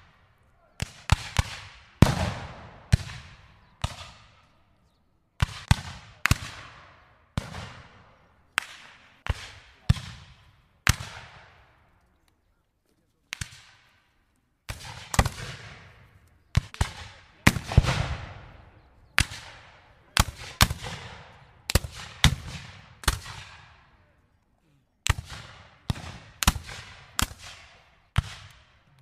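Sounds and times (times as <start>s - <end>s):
rifle shots echoing: 0.8s - 4.5s, 5.4s - 11.8s, 14.7s - 24.0s, 25.0s - 28.9s.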